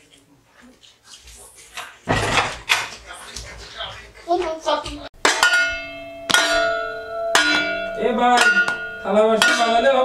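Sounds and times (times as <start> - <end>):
metal plate gong ringing: 5.2 - 10.0.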